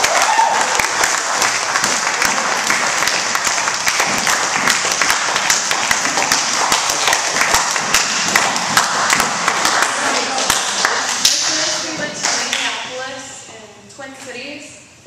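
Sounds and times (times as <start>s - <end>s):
children applauding: 0.0s - 11.2s.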